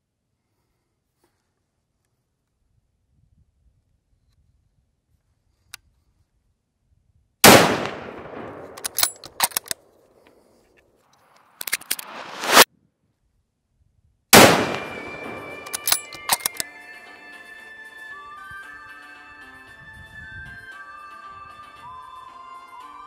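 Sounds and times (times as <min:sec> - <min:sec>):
rifle shots echoing: 0:07.4 - 0:09.8, 0:11.8 - 0:12.6, 0:14.4 - 0:16.6
sharp clicks: 0:07.5 - 0:09.8, 0:11.5 - 0:12.6, 0:14.4 - 0:16.7.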